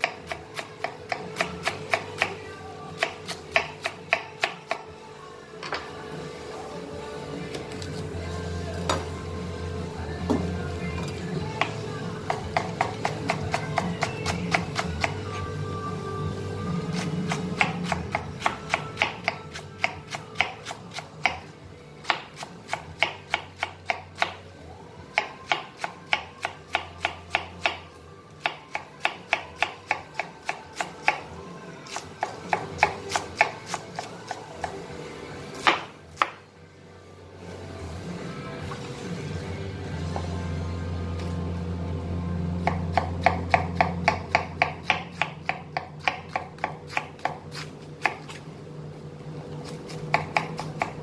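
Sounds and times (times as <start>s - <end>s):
background music: 0.0s - 51.0s
knife shredding cabbage on board: 46.0s - 48.4s.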